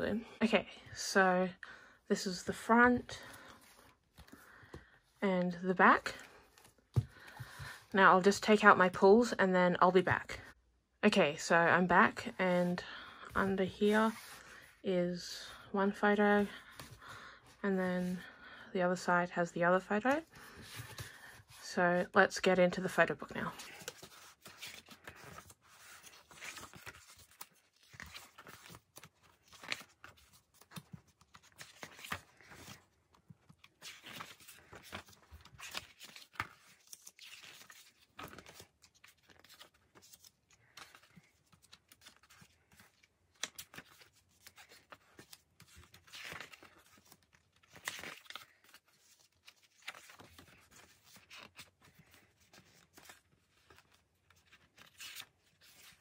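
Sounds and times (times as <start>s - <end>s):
book pages turning: 23.6s - 56.0s.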